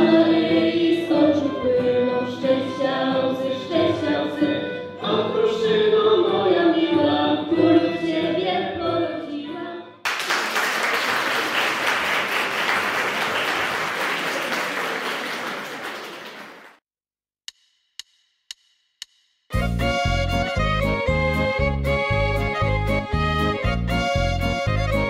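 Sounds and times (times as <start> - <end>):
young voices singing: 0.0 - 9.6
violin accompaniment: 0.2 - 5.4, 19.5 - 25.0
audience applause: 10.1 - 16.8.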